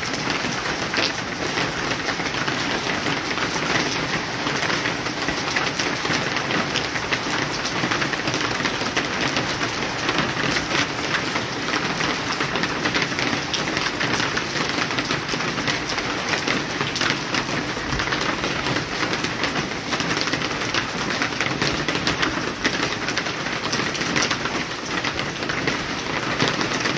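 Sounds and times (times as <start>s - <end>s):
heavy rain on pavement: 0.0s - 26.9s.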